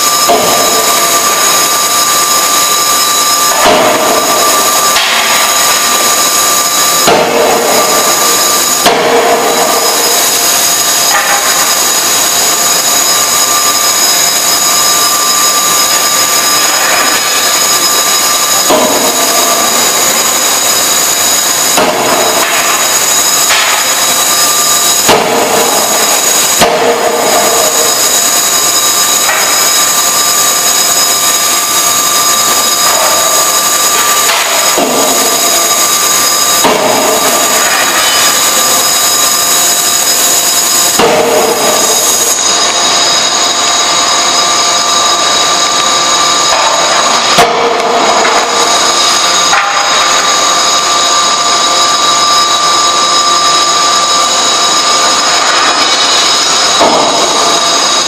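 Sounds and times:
hammer blows on workpiece: 0.0s - 15.4s, 16.0s - 30.0s
forging hammer machine noise: 0.0s - 58.0s
high steady tones: 0.0s - 58.0s.

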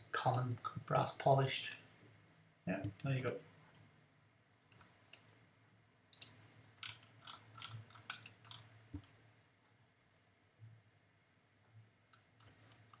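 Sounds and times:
computer mouse clicks: 6.2s - 9.1s.

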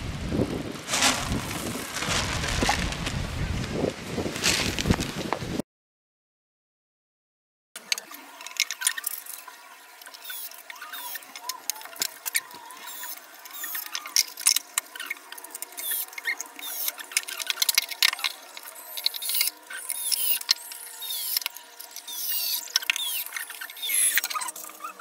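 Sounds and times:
small squeaks: 8.1s - 25.0s.

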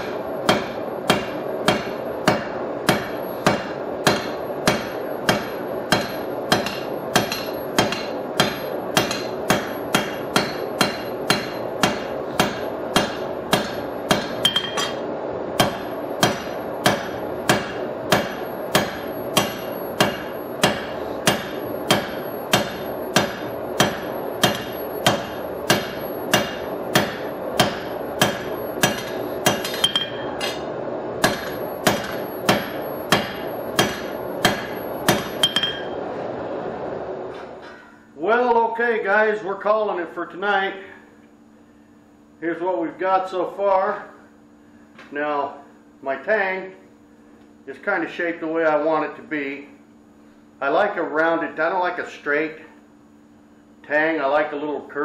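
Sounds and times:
hammer striking steel on anvil: 0.0s - 15.0s, 15.6s - 36.0s.

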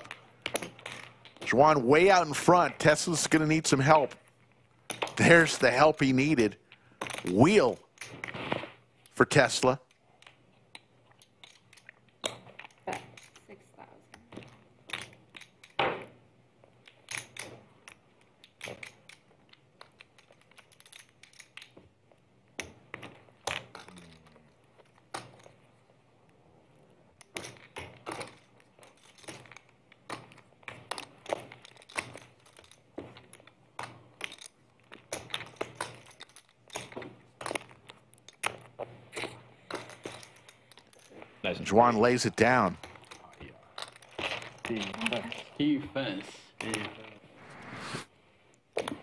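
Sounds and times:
poker chips clicking: 9.8s - 13.5s, 14.2s - 15.8s, 16.6s - 25.7s, 27.2s - 41.2s.

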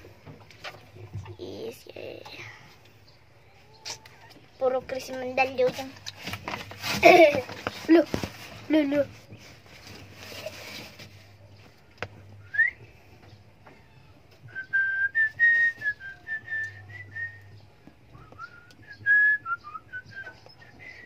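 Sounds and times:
person whistling a tune: 12.4s - 12.9s, 14.5s - 17.5s, 18.2s - 21.0s.

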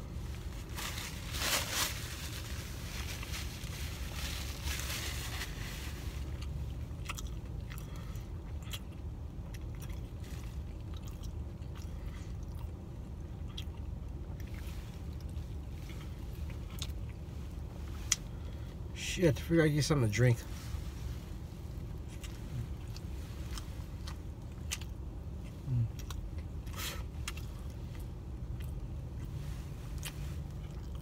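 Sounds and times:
steady low hum: 0.0s - 31.0s
person chewing wetly: 6.3s - 17.3s, 22.0s - 31.0s.

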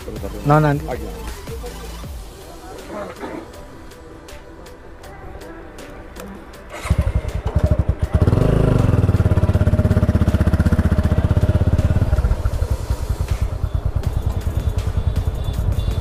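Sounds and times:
motorcycle engine pulling away: 6.7s - 16.0s.

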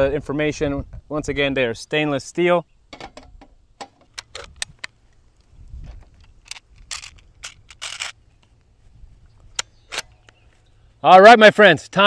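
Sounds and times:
air rifle clicks and rattles: 3.0s - 8.6s.

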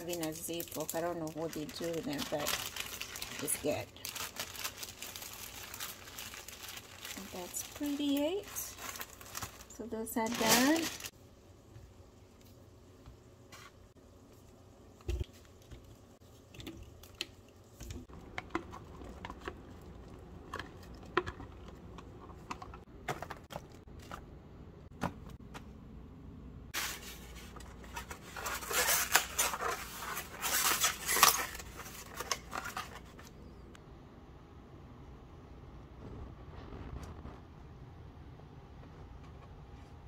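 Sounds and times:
foam containers scraping and rustling: 10.2s - 11.1s, 26.8s - 33.3s.

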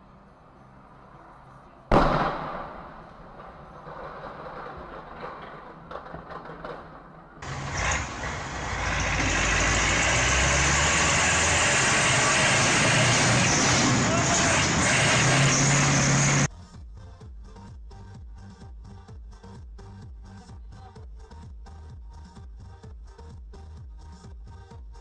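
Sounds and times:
street noise: 0.0s - 16.6s
loud bang: 1.9s - 5.0s
tractor diesel engine running: 7.4s - 16.5s.

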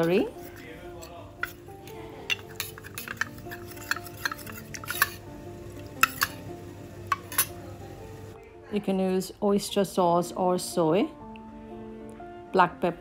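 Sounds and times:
spoon scraping metal bowl: 0.0s - 5.3s, 5.9s - 6.4s, 7.1s - 7.6s.

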